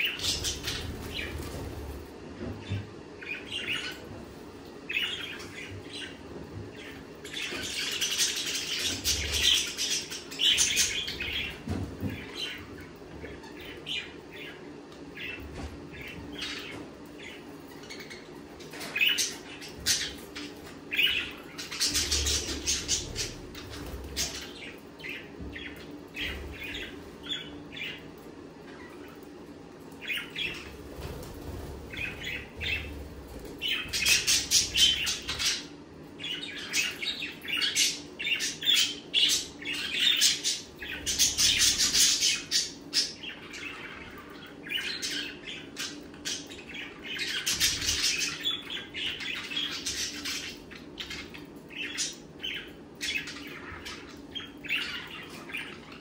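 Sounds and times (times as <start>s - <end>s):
budgerigars chattering: 33.6s - 56.0s.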